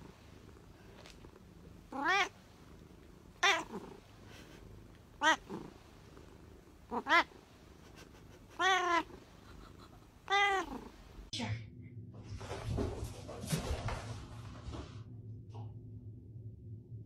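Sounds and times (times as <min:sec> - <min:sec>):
cat meowing: 0:01.9 - 0:02.3, 0:03.4 - 0:03.8, 0:05.2 - 0:05.6, 0:06.9 - 0:07.3, 0:08.6 - 0:09.1, 0:10.3 - 0:10.9.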